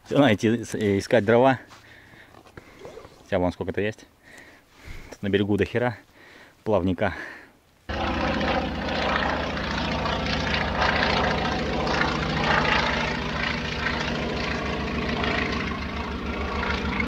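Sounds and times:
engine running with low pulsing: 7.9 - 17.0.

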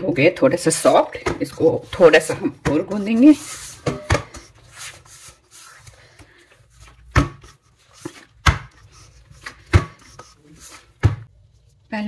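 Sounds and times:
dough rubbing: 0.7 - 12.0.

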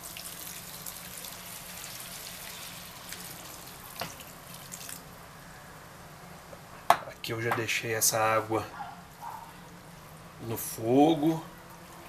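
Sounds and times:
water pouring into a pan: 0.0 - 5.0.

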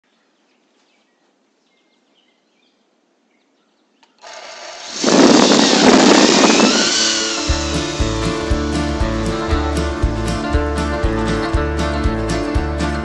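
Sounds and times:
faint birds chirping: 0.0 - 4.3
loud sound with steady tones: 4.5 - 10.5.

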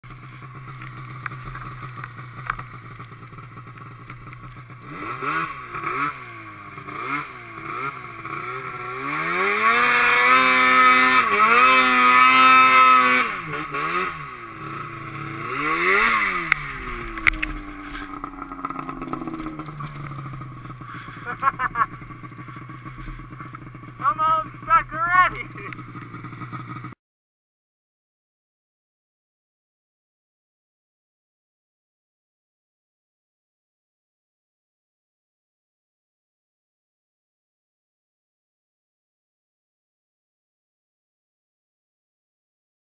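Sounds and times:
snowmobile engine revving: 4.5 - 27.0.

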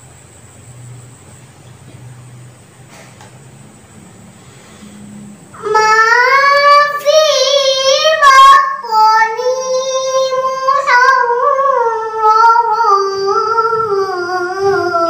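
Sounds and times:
girl reciting melodically: 5.5 - 15.0.

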